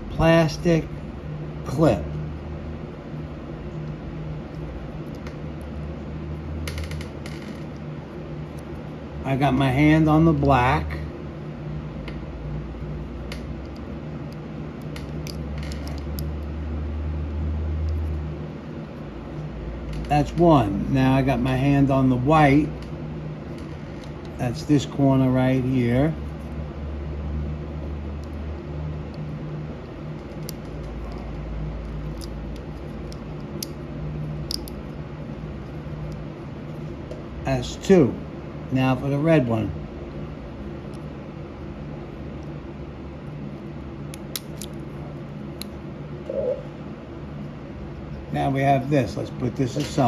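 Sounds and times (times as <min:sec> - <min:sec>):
steady low hum: 0:00.0 - 0:50.0
low hum: 0:39.7 - 0:48.3.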